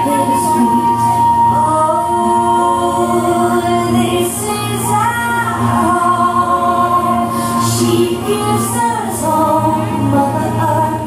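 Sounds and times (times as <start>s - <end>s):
people singing: 0.0s - 11.0s
sustained backing tones: 0.0s - 11.0s.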